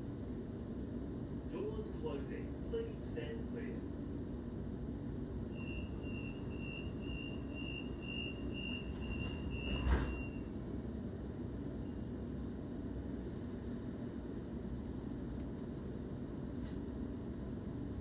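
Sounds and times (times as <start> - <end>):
train humming: 0.0 - 18.0
pulsing door warning beep: 5.4 - 10.5
train doors shutting thud: 8.8 - 10.4.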